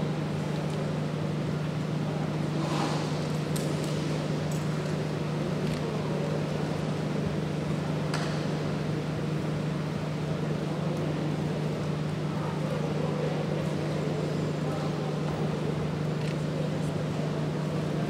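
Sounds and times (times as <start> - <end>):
constant background noise: 0.0 - 18.0
steady low hum: 0.0 - 18.0.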